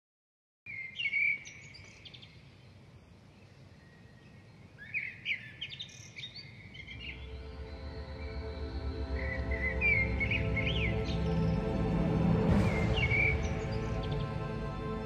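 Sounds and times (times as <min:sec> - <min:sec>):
small birds chirping: 0:00.7 - 0:14.9
soft music: 0:06.9 - 0:15.0.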